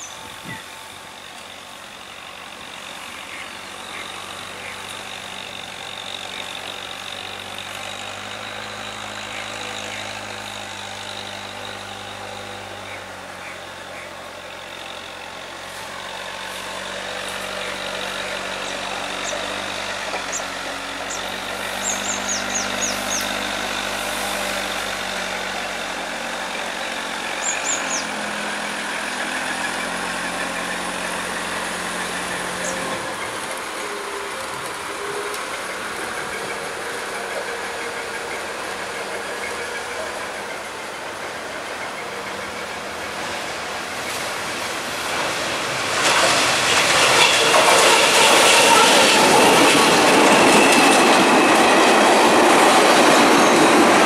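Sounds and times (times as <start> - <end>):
locomotive engine drone: 0.0 - 54.0
bird chirping: 21.1 - 23.4, 27.4 - 28.1.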